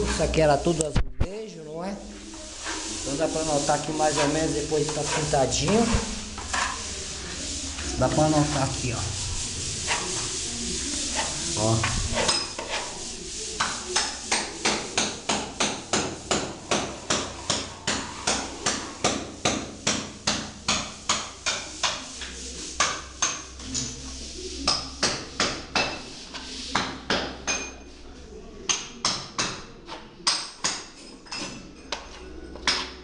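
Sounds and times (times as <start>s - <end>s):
hammering: 13.6s - 22.0s.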